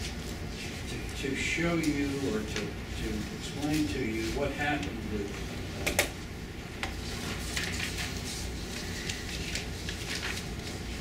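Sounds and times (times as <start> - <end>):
faint rustles and clicks: 6.8 - 11.0.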